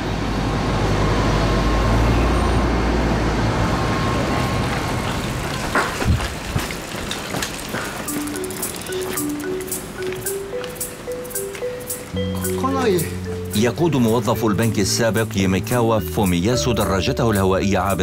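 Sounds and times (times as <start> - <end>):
heavy vehicle engine: 0.0 - 6.5
light traffic noise: 0.0 - 18.0
music: 8.1 - 18.0.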